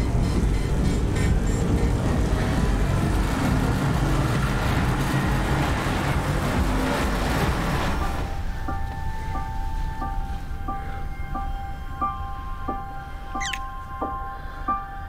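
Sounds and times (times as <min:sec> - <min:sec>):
loud dense low rumble: 0:00.0 - 0:08.6.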